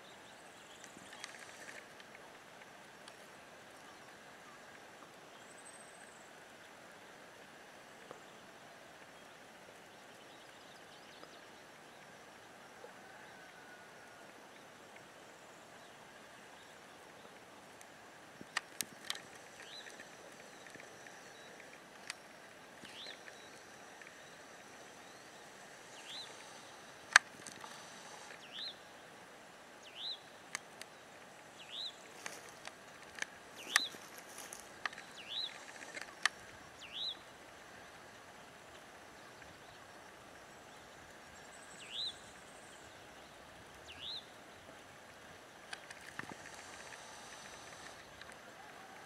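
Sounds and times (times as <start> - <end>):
breeze hiss: 0.0 - 49.0
sharp clicks: 32.6 - 36.5
bird calling: 33.6 - 37.2.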